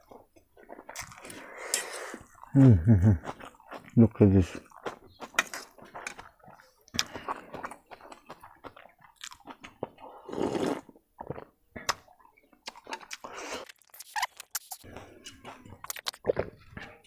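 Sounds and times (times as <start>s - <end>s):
chewing noodles: 0.0s - 17.0s
slurping soup: 0.8s - 2.6s, 9.5s - 12.0s, 12.7s - 17.0s.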